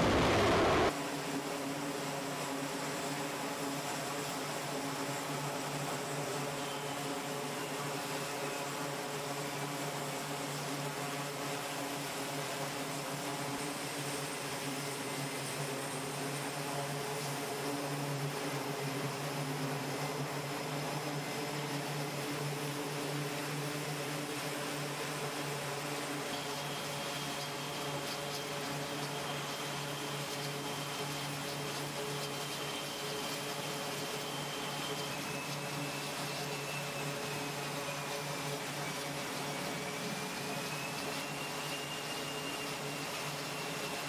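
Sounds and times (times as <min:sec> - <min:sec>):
turboprop engines droning: 0:00.0 - 0:00.9, 0:13.5 - 0:44.0.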